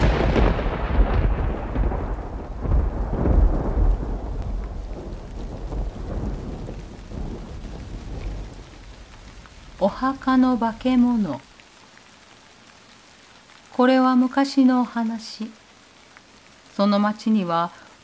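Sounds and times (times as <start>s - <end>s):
thunder rumbling: 0.0s - 13.6s
steady rain: 0.0s - 18.0s.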